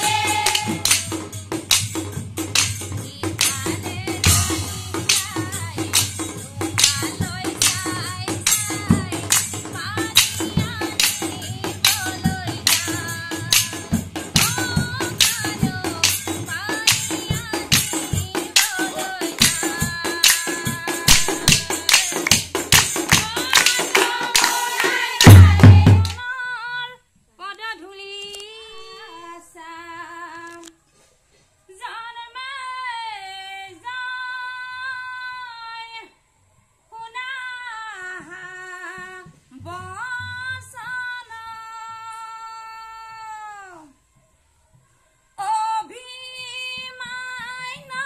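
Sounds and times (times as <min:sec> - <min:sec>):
group hand-clapping: 0:00.0 - 0:01.1, 0:21.1 - 0:26.2
brass cymbals: 0:00.0 - 0:20.0
drums: 0:00.0 - 0:26.2.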